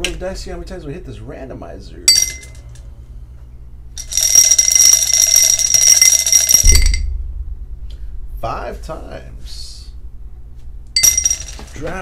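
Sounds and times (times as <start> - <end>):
dice rattling in a cup: 4.0 - 6.7.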